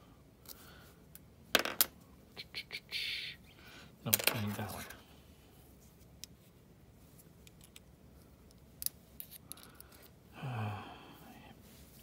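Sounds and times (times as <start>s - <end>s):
man humming: 10.4s - 11.4s.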